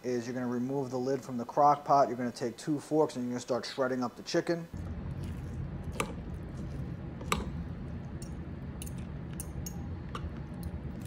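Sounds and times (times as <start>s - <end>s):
steady low hum: 4.7s - 11.0s
wet squishing of shredded meat: 4.8s - 8.1s.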